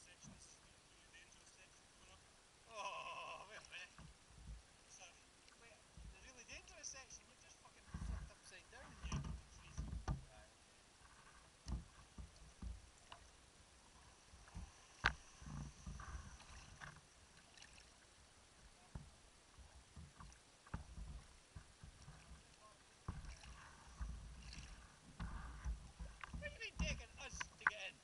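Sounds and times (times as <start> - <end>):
water knocking against camera: 4.0 - 4.7, 7.8 - 10.4, 11.2 - 13.3, 14.4 - 17.1, 18.8 - 27.9.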